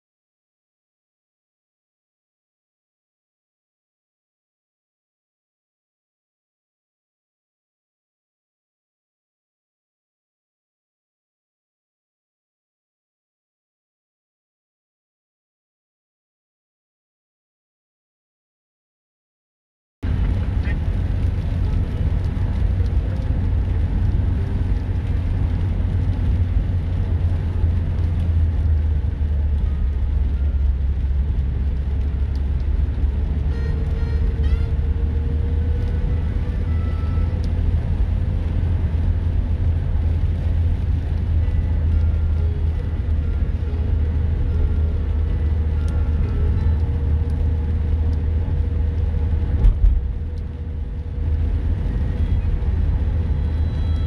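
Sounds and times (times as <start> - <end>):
car rumbling on wet road: 20.0 - 54.0.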